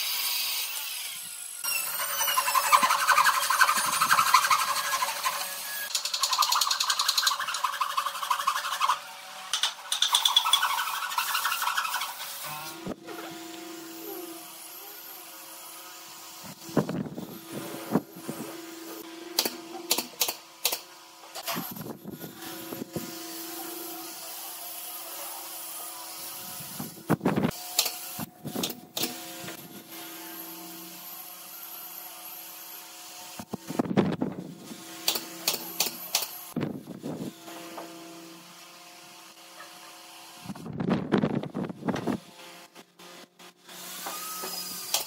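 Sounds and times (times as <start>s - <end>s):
nail gun firing into wood: 19.4s - 20.9s, 35.0s - 36.3s.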